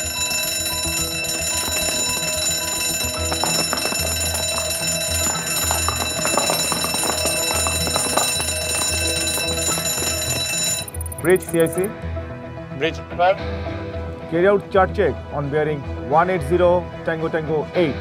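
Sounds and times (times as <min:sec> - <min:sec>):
electric alarm bell ringing: 0:00.0 - 0:11.9.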